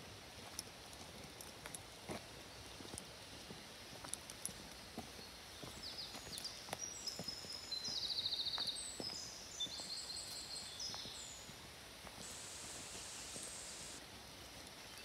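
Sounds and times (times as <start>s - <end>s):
footsteps on dirt path: 0.4s - 14.0s
songbirds singing: 5.1s - 11.6s.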